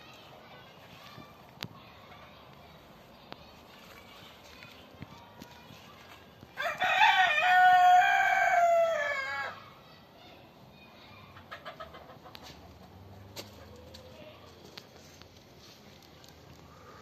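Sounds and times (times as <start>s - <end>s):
rooster crowing: 6.6s - 9.6s
faint rustles: 12.4s - 17.0s.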